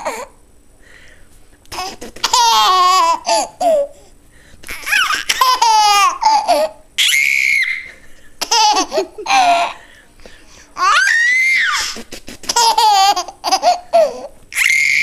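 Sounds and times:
person making spitting noises: 1.7 - 2.4, 11.8 - 12.7
baby laughing: 1.7 - 4.0, 4.6 - 9.8, 10.8 - 15.0.

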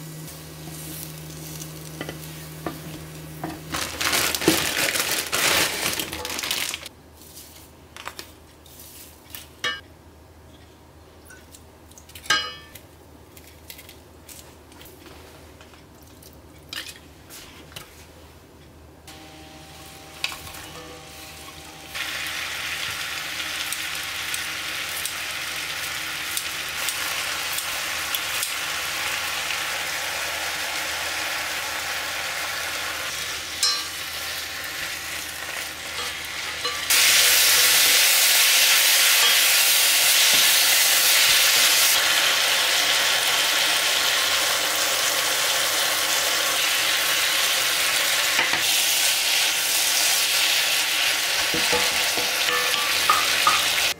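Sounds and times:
food sizzling in a frying pan: 19.1 - 53.9.

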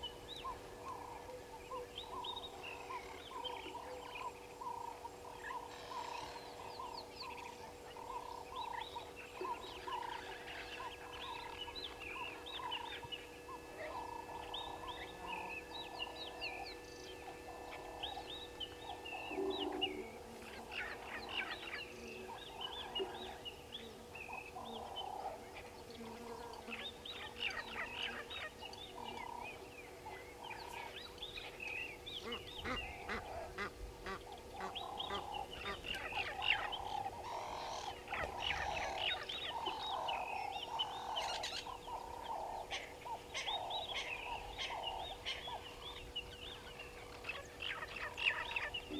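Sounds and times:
faint steady hum: 0.0 - 48.9
geese honking: 32.2 - 45.6.

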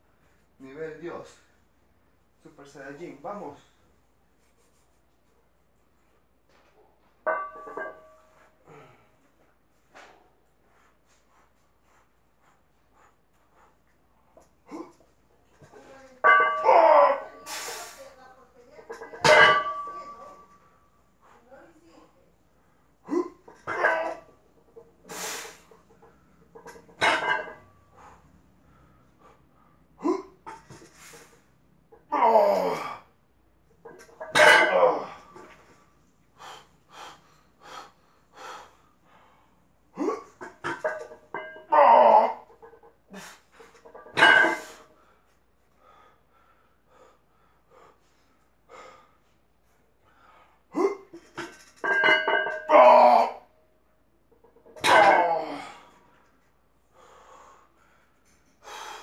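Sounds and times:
man grunting and exhaling: 23.0 - 24.2, 32.1 - 33.2, 34.5 - 35.3, 40.0 - 40.4, 50.7 - 51.2, 52.7 - 53.4, 54.9 - 56.0.

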